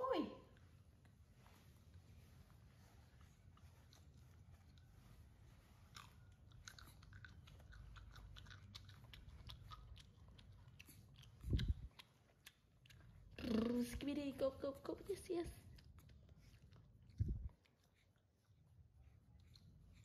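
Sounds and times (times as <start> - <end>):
low steady rumble: 0.0 - 20.0
baby monkey chewing: 3.0 - 14.2, 15.6 - 20.0.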